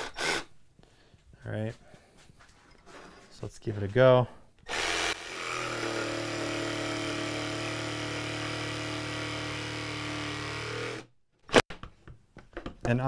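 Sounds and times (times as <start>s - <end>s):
jigsaw cutting hardwood: 4.7s - 11.1s.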